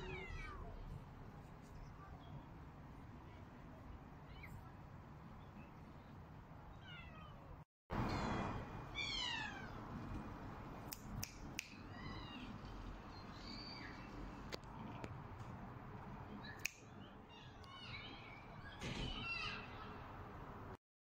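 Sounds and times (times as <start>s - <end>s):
cats meowing: 0.0s - 0.8s, 8.9s - 9.8s.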